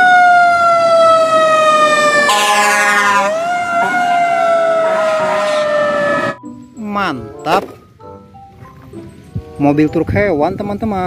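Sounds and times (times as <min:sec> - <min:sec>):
fire engine siren wailing: 0:00.0 - 0:06.4.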